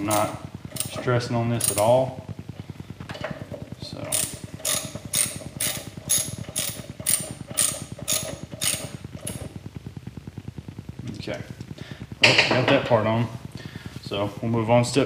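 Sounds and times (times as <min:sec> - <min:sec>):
hand ratchet clicking: 0:00.0 - 0:02.0, 0:04.1 - 0:09.4.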